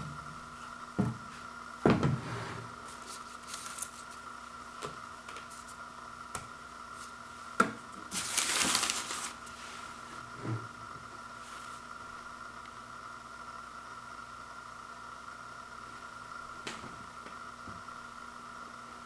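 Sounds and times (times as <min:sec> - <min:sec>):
faint steady whine: 0:00.0 - 0:19.0
plastic packaging crinkling: 0:02.9 - 0:04.2, 0:08.1 - 0:09.6.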